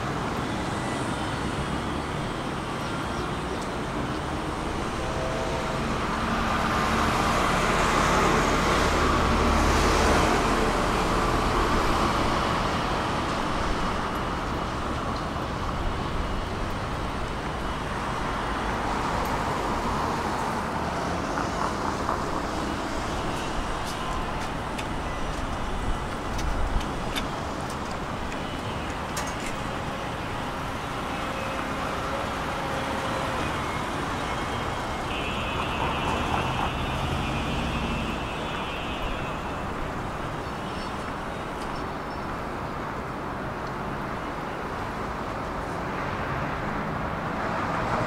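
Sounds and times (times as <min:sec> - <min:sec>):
city road traffic: 0:00.0 - 0:48.0.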